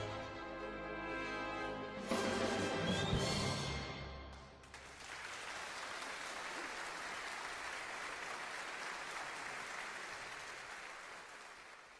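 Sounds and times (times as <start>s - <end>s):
crowd applauding: 4.6s - 11.9s.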